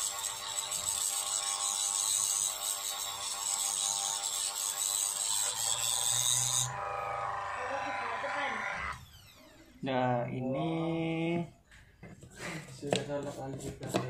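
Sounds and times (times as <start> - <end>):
mini drill grinding: 0.0 - 9.9.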